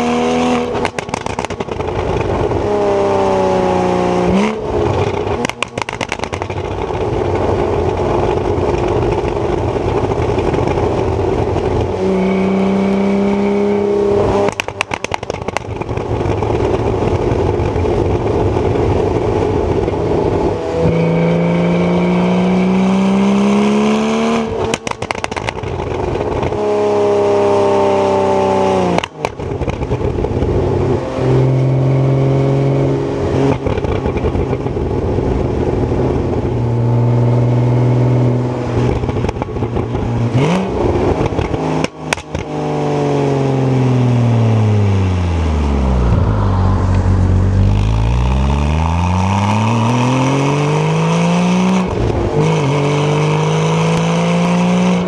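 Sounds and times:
sports car engine accelerating: 0.0s - 55.0s
exhaust crackling: 0.5s - 21.4s, 43.2s - 55.0s.

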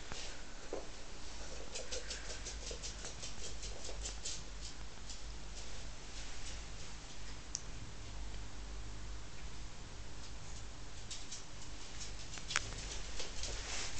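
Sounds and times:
dog claws pattering on wood floor: 1.5s - 5.8s, 10.2s - 13.9s.

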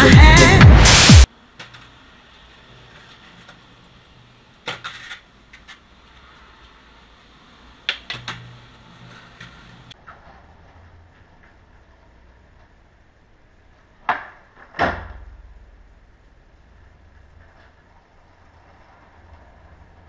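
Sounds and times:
skateboard clacks and knocks: 4.6s - 5.9s, 14.0s - 15.5s
faint low hum: 8.8s - 20.0s.

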